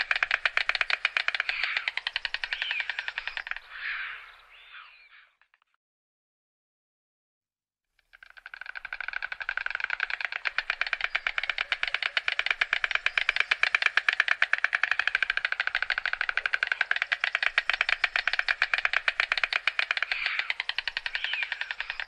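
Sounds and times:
stork bill clattering: 0.0s - 3.7s, 8.1s - 22.0s.

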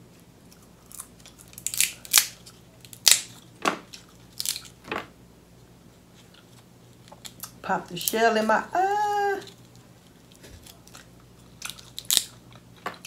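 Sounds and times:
crab shell crunching: 0.5s - 4.8s, 9.4s - 13.0s.

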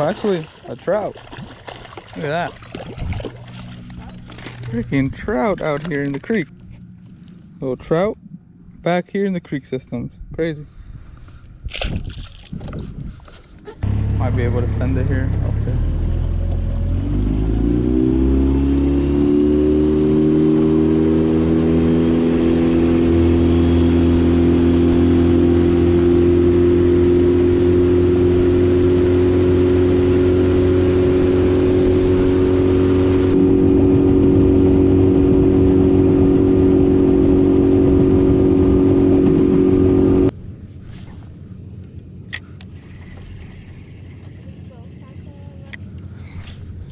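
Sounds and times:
water and wind hiss: 0.0s - 4.0s
outboard motor throttling up: 0.0s - 7.2s, 13.8s - 40.3s.

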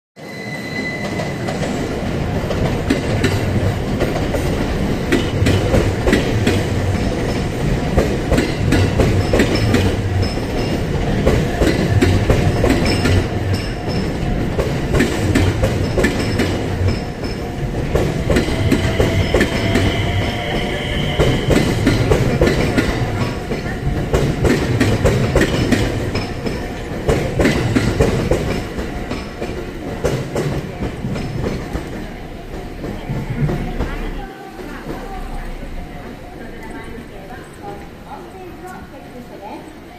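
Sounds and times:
train wheel squeal: 0.2s - 2.1s, 8.4s - 11.0s, 11.6s - 14.2s, 15.7s - 23.9s
train wheels clacking over rail joints: 1.1s - 38.0s.

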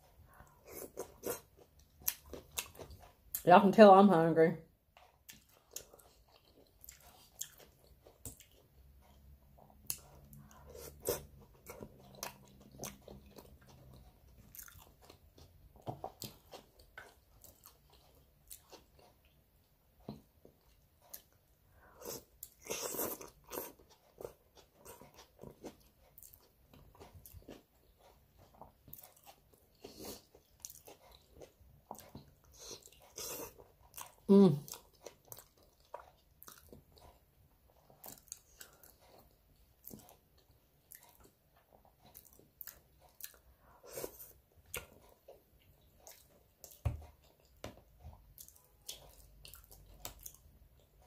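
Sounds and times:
person chewing and crunching food: 0.0s - 3.5s, 4.7s - 51.0s.

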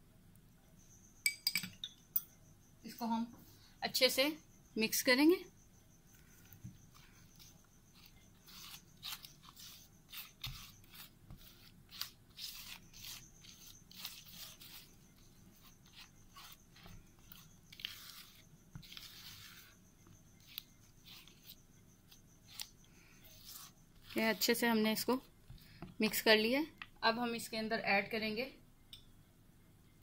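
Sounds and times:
spatula scraping a bowl: 6.3s - 25.2s.

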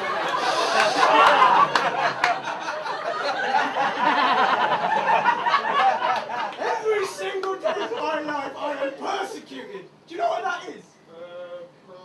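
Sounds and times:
audience laughing: 0.0s - 6.6s
sharp claps: 0.7s - 2.4s.

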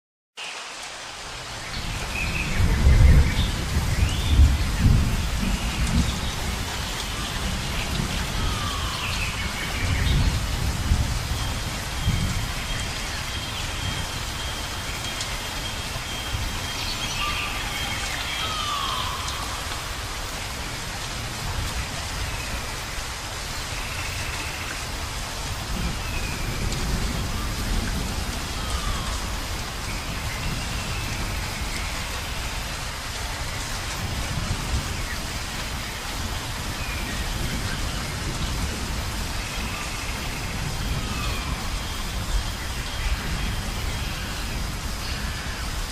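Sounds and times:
steady rain: 0.4s - 45.9s
thunder rumbling: 1.8s - 16.7s, 25.4s - 32.7s.

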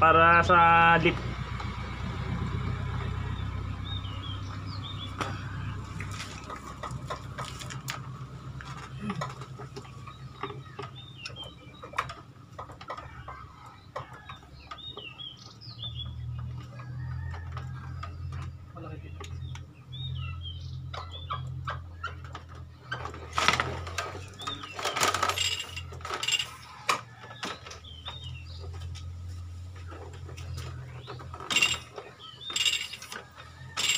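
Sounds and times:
birds chirping: 0.0s - 33.9s.

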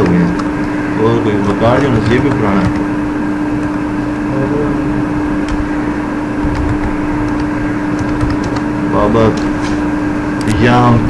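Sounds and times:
electrical hum and hiss: 0.0s - 11.0s
keyboard clicks: 6.5s - 8.7s.

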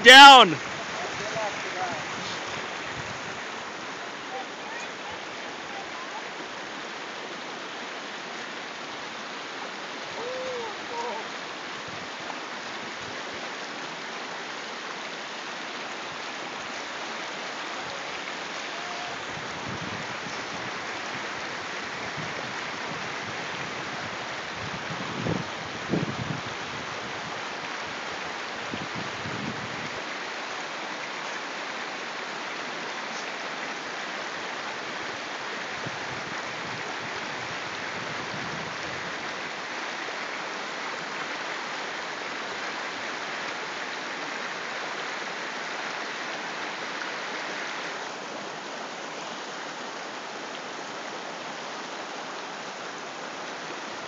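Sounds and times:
stream rushing over rocks: 0.0s - 54.0s.

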